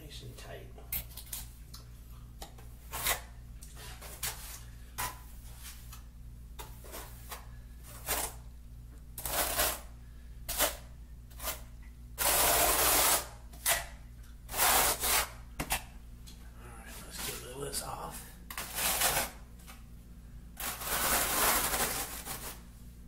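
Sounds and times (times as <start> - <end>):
steady low hum: 0.0 - 23.0
trowel scraping wet mortar: 9.2 - 9.9, 12.2 - 13.9, 18.6 - 19.4.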